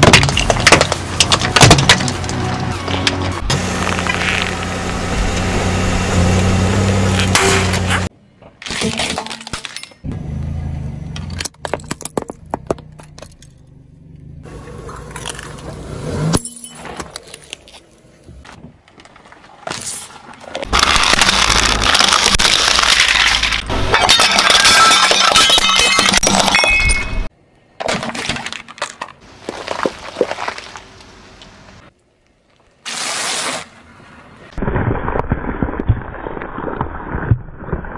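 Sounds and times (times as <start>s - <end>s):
car tyre crushing objects: 0.0s - 5.8s, 6.4s - 10.1s, 11.1s - 13.8s, 14.7s - 27.0s, 27.7s - 31.6s.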